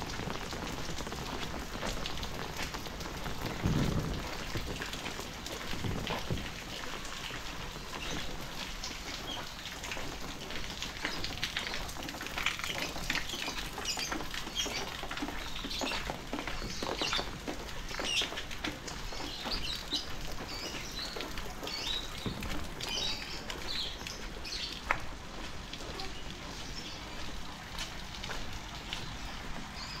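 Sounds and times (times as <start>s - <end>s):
rain pattering on hard surfaces: 0.0s - 30.0s
small birds chirping: 11.0s - 24.9s.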